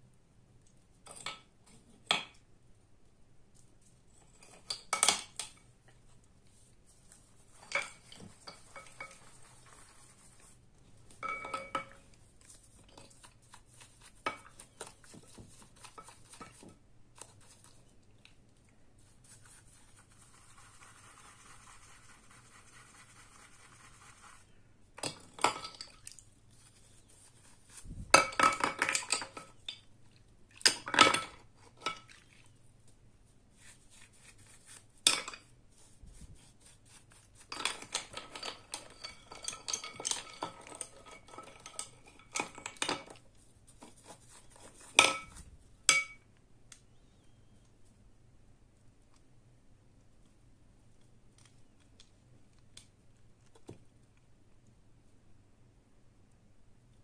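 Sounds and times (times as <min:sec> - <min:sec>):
bristle brush scrubbing: 0:06.0 - 0:10.9, 0:12.1 - 0:17.9, 0:18.9 - 0:24.5, 0:26.4 - 0:28.0, 0:33.2 - 0:37.8.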